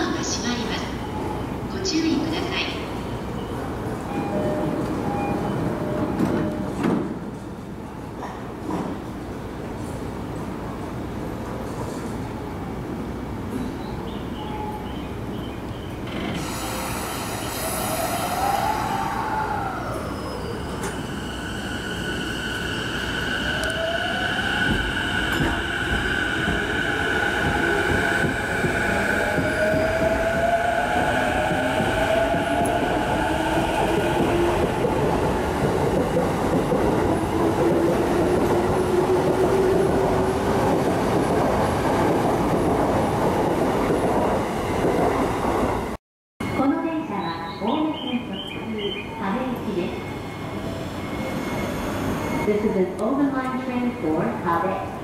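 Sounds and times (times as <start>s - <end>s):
train wheels rumbling and rattling: 20.1s - 46.0s.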